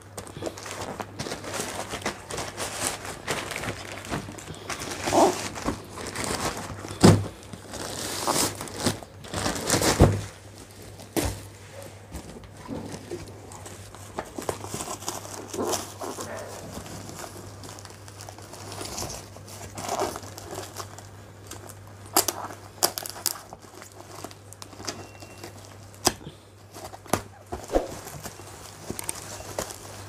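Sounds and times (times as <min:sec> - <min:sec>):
plastic bag crinkling and tearing: 0:00.2 - 0:11.5, 0:12.2 - 0:30.0
cardboard box thumps: 0:07.0 - 0:07.3.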